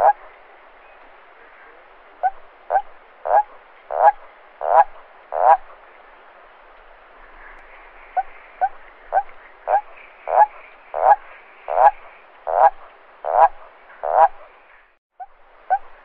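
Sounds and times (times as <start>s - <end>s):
toad croaking: 0.0s - 0.3s, 2.2s - 5.8s, 8.1s - 14.5s.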